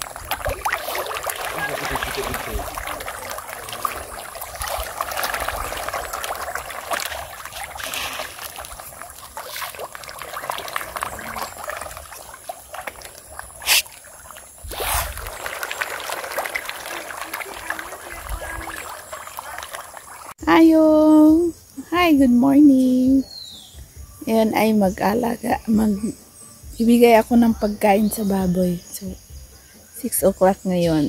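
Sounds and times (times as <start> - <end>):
loud sharp splash: 0.0 - 20.3
fish splashing at water surface: 0.0 - 20.4.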